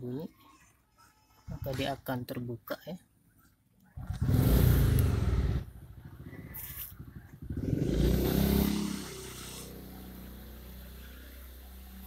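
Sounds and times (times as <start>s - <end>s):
vehicle engine: 4.0s - 12.0s.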